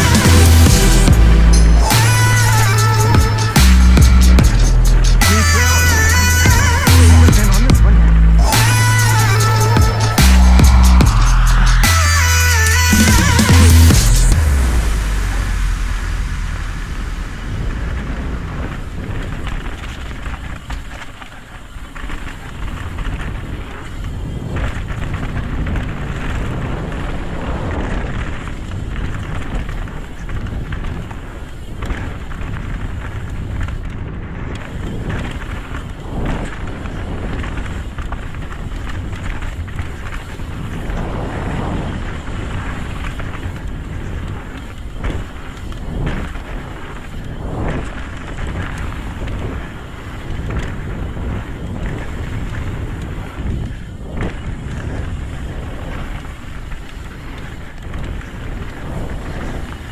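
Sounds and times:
bike rattling over bumps: 0:00.0 - 0:59.9
wind over microphone: 0:00.0 - 0:59.9
tyres rolling on dirt: 0:12.4 - 0:59.9.

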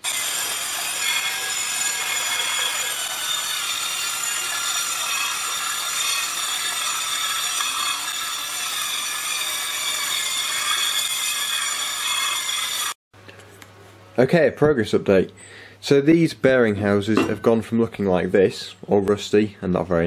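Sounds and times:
wire brush grinding on metal: 0:00.0 - 0:13.0.

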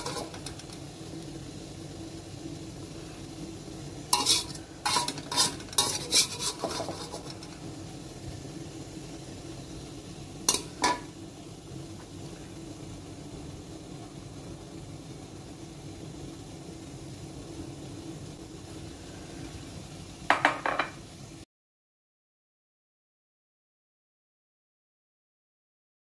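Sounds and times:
metal spatula scraping wok: 0:00.0 - 0:00.8, 0:04.1 - 0:07.6, 0:10.5 - 0:11.1.

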